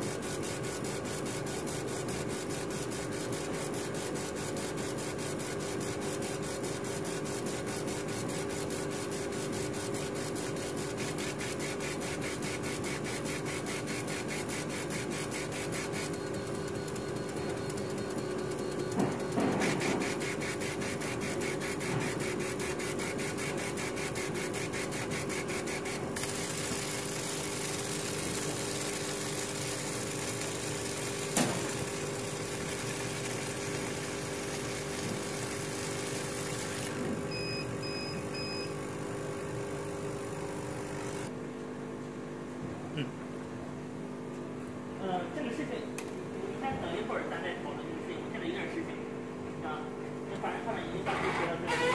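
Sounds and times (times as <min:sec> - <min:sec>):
laser engraver drive buzzing: 0:00.0 - 0:41.3
machine fan hum: 0:00.0 - 0:51.9.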